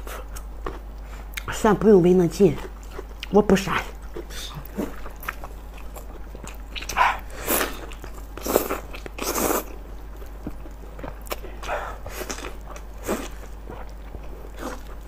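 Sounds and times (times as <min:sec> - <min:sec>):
wet biting and chewing: 0:02.6 - 0:15.0.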